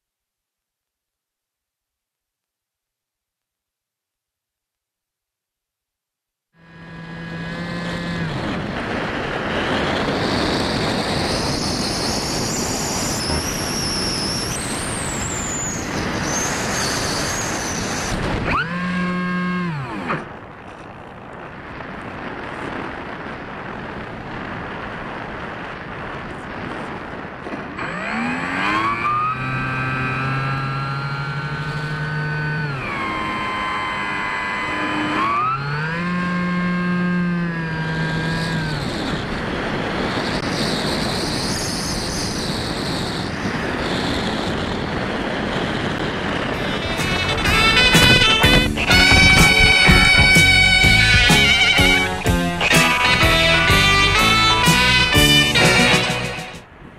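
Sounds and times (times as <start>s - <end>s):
electric motor and propeller whining: 6.6s - 25.0s, 26.0s - 56.7s
wind rushing over airframe: 7.2s - 19.0s, 19.7s - 29.1s, 37.4s - 56.9s.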